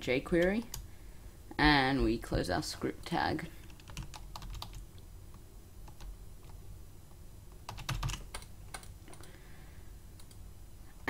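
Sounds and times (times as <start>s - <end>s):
computer keyboard typing: 3.6s - 4.8s, 5.9s - 6.6s, 7.6s - 9.4s.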